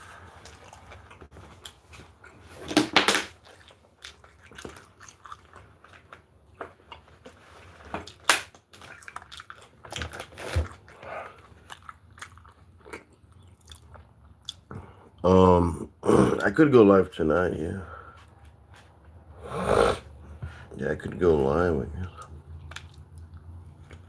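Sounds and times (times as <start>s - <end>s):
food crunching: 0.0s - 15.1s, 22.1s - 24.0s
chewing and biting: 0.2s - 2.6s, 3.3s - 15.0s, 22.2s - 24.0s.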